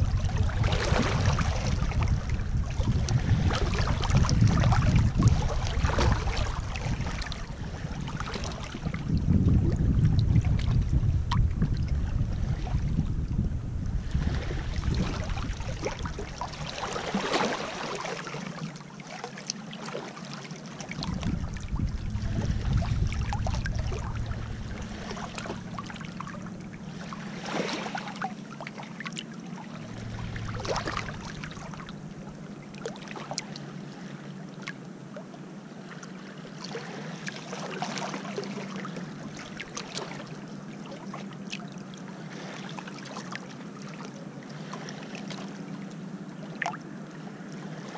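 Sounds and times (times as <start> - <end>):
waves lapping on pebbles: 0.0 - 9.1, 14.0 - 32.1, 35.8 - 41.6, 42.2 - 45.6, 47.6 - 47.9
wind on microphone: 0.0 - 18.0, 20.9 - 28.4, 29.6 - 33.4.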